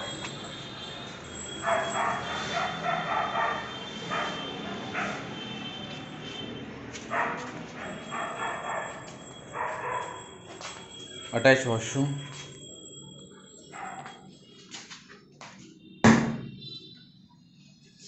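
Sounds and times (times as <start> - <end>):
dog barking: 1.6 - 5.4, 7.1 - 10.3, 13.7 - 14.2.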